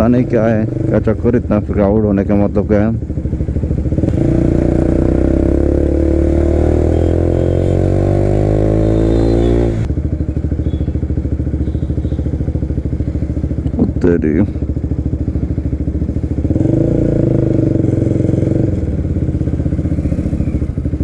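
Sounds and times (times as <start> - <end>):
motorcycle engine revving: 0.0 - 21.0.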